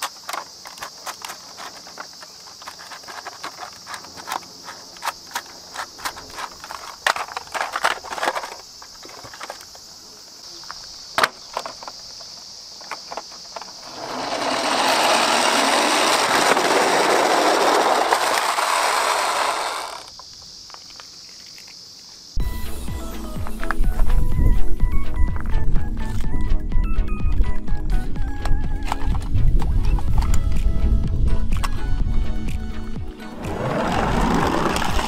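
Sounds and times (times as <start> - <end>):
plastic toy clicks and knocks: 0.0 - 9.8, 28.4 - 30.5
plastic toy wheels rolling: 0.0 - 9.8, 11.2 - 12.1, 12.8 - 21.7, 28.4 - 30.5, 33.4 - 35.0.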